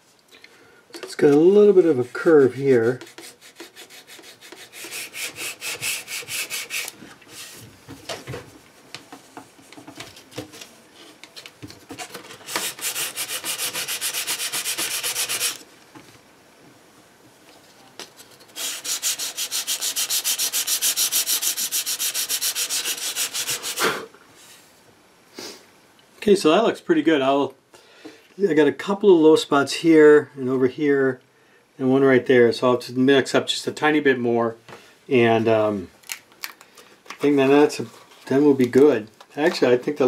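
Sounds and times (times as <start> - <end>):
sandpaper rubbing on filler: 1.8 - 7.6, 12.4 - 15.6, 18.6 - 24.0.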